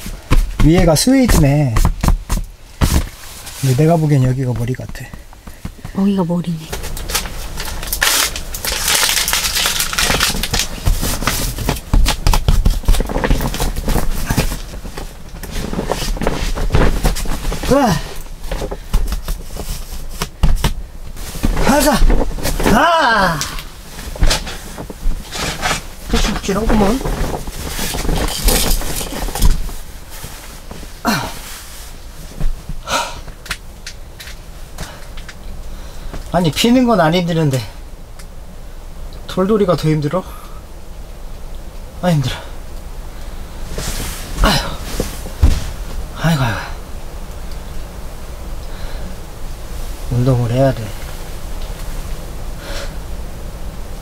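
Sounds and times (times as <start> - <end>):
air mattress rustling and crinkling: 0.0 - 37.9, 41.9 - 54.0
person groaning: 17.6 - 18.2, 21.6 - 23.6, 31.0 - 31.5, 32.8 - 33.3, 44.4 - 44.9.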